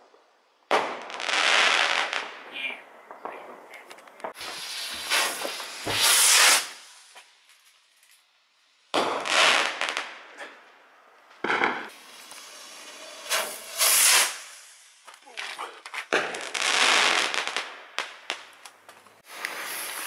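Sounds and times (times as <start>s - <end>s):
small firework pops: 0.0s - 8.3s, 8.9s - 20.0s
firework bang: 3.1s - 7.2s, 8.9s - 9.7s, 11.4s - 14.8s, 16.1s - 18.4s
firework rocket hissing: 4.3s - 7.7s, 8.8s - 10.6s, 11.4s - 17.7s, 19.2s - 20.0s.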